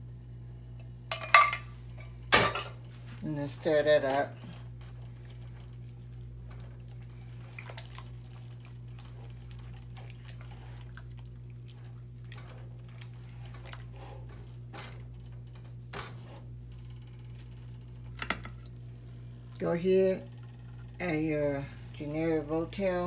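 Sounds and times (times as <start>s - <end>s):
steady low hum: 0.0s - 23.0s
spoon stirring thick food: 4.6s - 16.5s.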